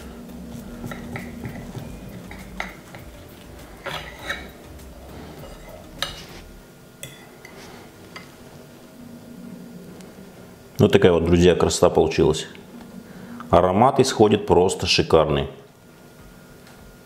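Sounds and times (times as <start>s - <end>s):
knife and fork scraping plate: 0.8s - 8.3s.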